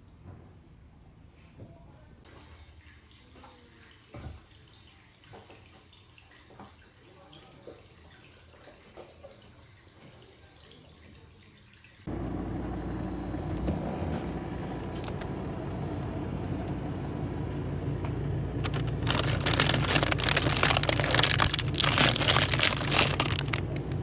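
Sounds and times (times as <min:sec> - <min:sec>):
low machine hum: 0:12.1 - 0:24.0
plastic wrapper crinkling: 0:18.6 - 0:24.0.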